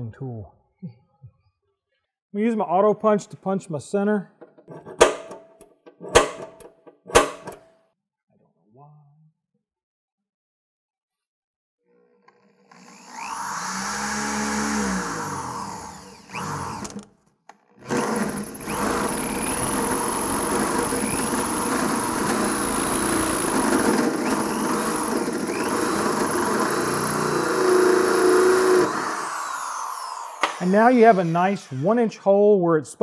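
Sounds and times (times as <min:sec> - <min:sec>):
drill hole saw cutting steel: 0:12.3 - 0:17.0, 0:17.8 - 0:32.3.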